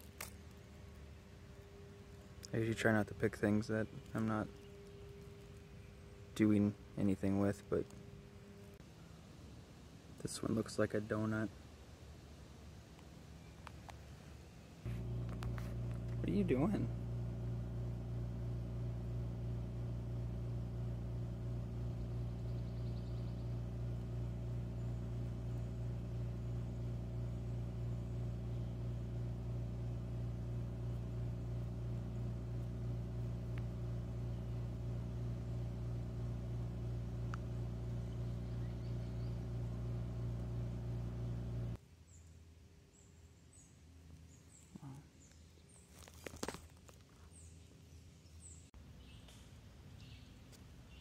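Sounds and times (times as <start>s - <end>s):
low droning motor hum: 0.0s - 10.2s, 11.0s - 41.8s
sharp crackle: 21.7s - 41.7s, 45.3s - 47.2s.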